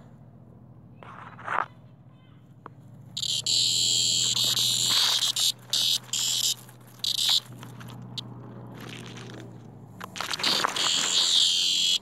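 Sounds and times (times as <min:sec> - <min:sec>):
cicada distress buzzing: 0:03.2 - 0:07.7, 0:10.3 - 0:12.0.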